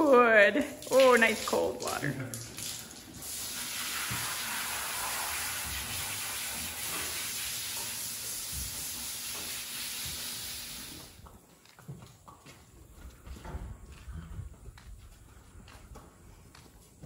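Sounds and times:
hose spray hissing: 0:03.1 - 0:11.2.

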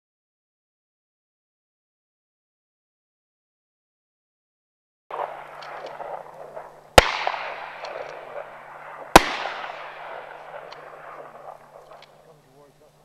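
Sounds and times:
shotgun shots with echo: 0:05.1 - 0:12.4.

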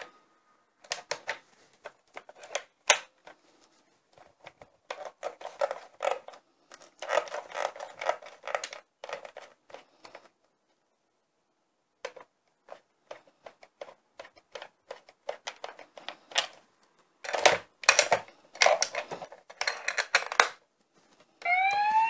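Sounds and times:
plastic toy clicking and rattling: 0:00.8 - 0:03.4, 0:04.4 - 0:10.3, 0:12.0 - 0:16.6, 0:17.2 - 0:20.6.

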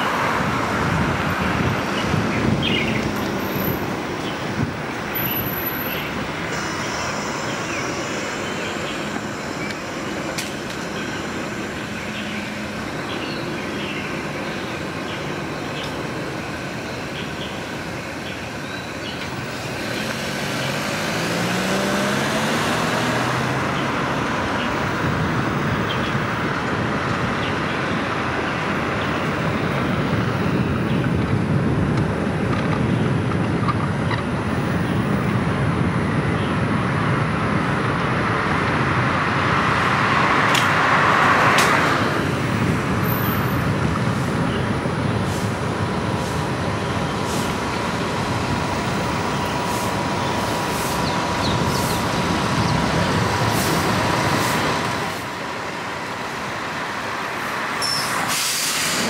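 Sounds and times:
rumble and hiss of traffic: 0:00.0 - 0:59.0
engine accelerating: 0:19.4 - 0:25.6.

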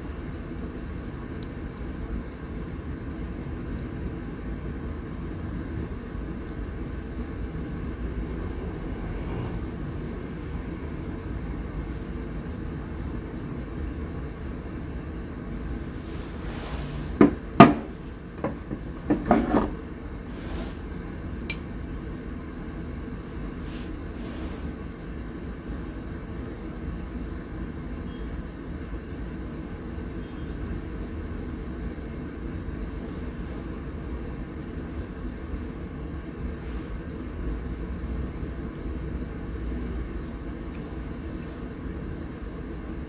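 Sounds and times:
steady low rumble: 0:00.0 - 0:19.1.

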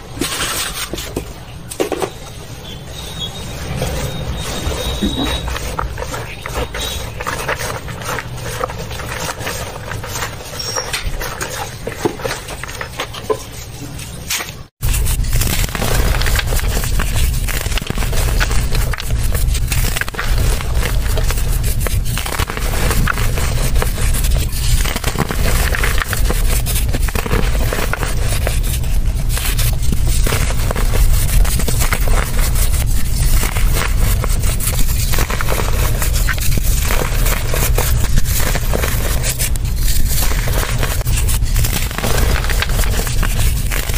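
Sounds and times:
dry earth crumbling crunch: 0:14.8 - 0:43.9.

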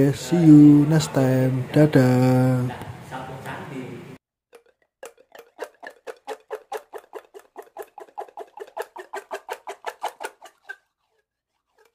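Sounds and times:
rapid clicking pulses: 0:05.0 - 0:10.7.

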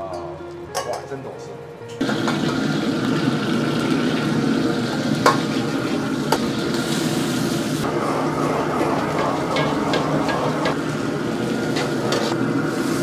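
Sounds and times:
bean sprouts sizzling in wok: 0:02.0 - 0:13.0
metal ladle knocking on wok: 0:08.9 - 0:10.8.

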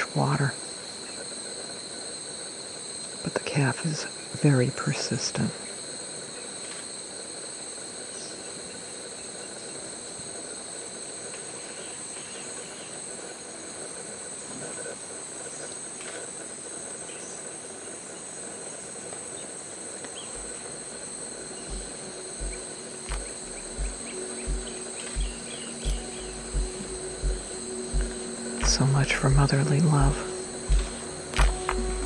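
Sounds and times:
rainforest insects droning: 0:00.0 - 0:32.0.

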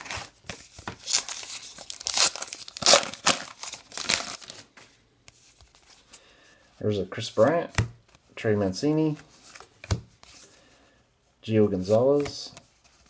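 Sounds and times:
faint handling of cards: 0:00.0 - 0:13.0
foil wrapper tearing and crinkling: 0:01.0 - 0:04.6.

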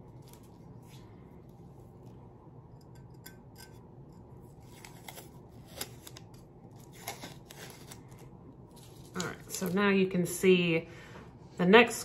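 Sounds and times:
tape peeling off: 0:04.6 - 0:09.6.

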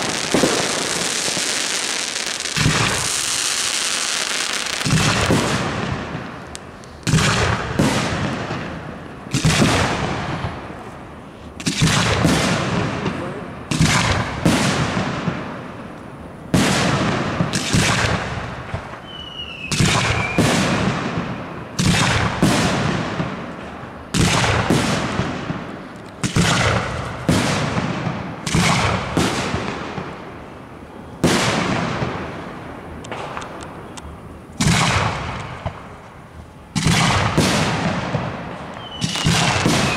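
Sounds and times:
firework shells bursting: 0:00.0 - 0:08.6
firework whistle: 0:18.9 - 0:22.6, 0:38.6 - 0:39.9.

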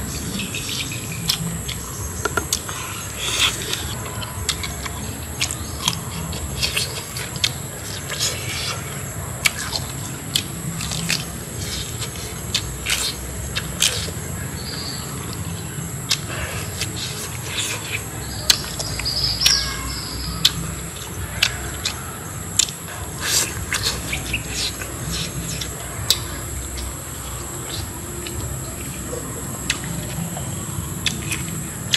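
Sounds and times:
close-up chewing: 0:00.0 - 0:31.9
high-pitched insect drone: 0:00.0 - 0:31.9.

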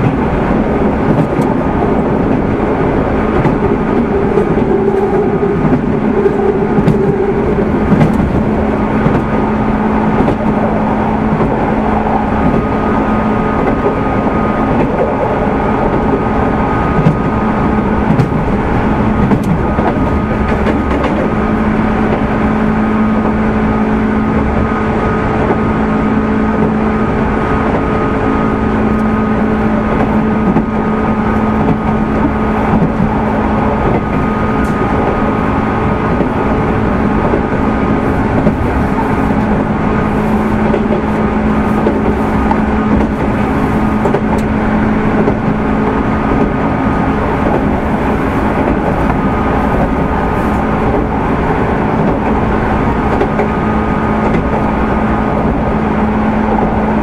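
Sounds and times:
train motor hum: 0:00.0 - 0:57.0
wheels rumbling on rails: 0:00.0 - 0:57.0.

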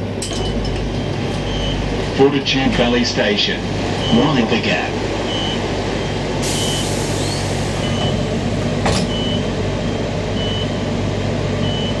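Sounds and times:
train equipment humming: 0:00.0 - 0:12.0
air hiss: 0:06.4 - 0:07.8.

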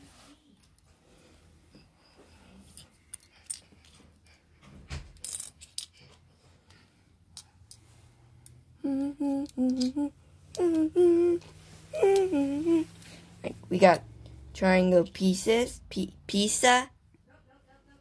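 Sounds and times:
plastic bricks clicking and clinking: 0:05.2 - 0:06.1
person humming: 0:08.8 - 0:13.1.

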